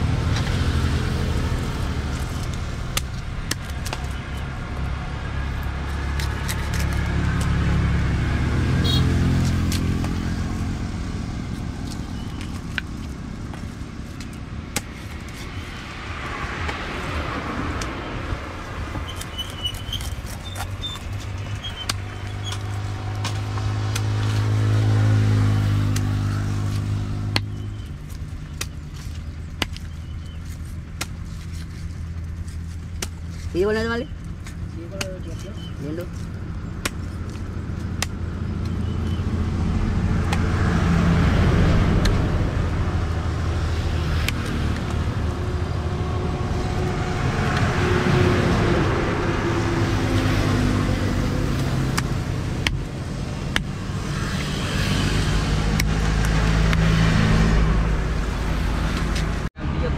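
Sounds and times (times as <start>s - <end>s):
vehicles passing: 0.0s - 59.9s.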